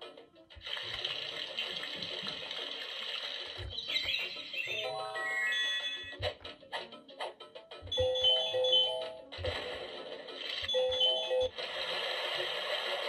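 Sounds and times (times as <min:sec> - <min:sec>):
toy playing electronic music: 0:03.6 - 0:06.4, 0:07.8 - 0:09.5, 0:10.6 - 0:11.6
chime-like melody: 0:07.9 - 0:09.2, 0:10.7 - 0:11.5.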